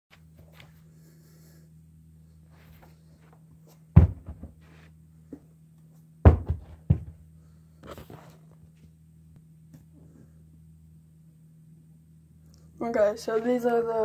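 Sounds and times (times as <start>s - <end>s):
shoe thudding onto carpet: 3.9s - 4.7s, 6.2s - 7.2s.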